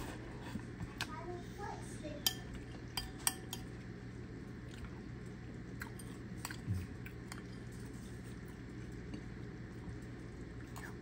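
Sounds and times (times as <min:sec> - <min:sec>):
steady low hum: 0:00.0 - 0:11.0
utensils clinking against dishes: 0:02.2 - 0:03.8.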